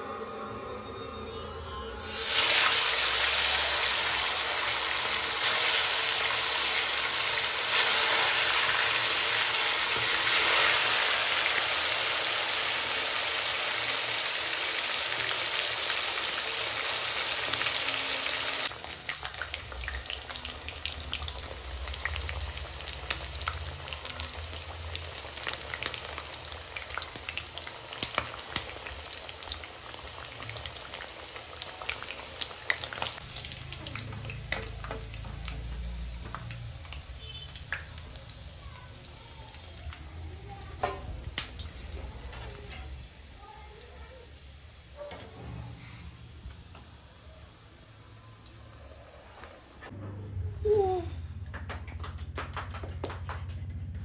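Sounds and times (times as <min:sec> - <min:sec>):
chicken sizzling in hot oil: 0:02.0 - 0:49.9
oil crackling and popping: 0:02.3 - 0:17.8, 0:18.6 - 0:43.9.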